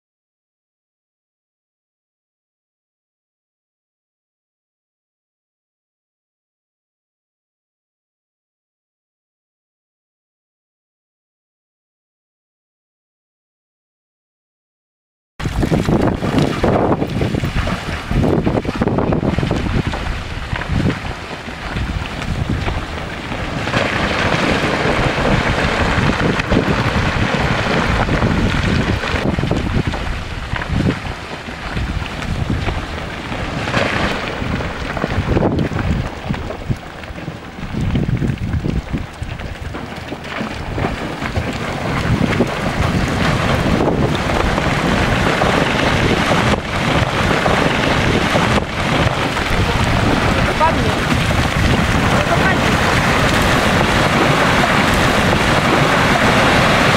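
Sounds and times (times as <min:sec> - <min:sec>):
low rumble: 0:15.4 - 0:56.9
rocks clattering down: 0:15.4 - 0:56.9
wind buffeting microphone: 0:15.4 - 0:56.9.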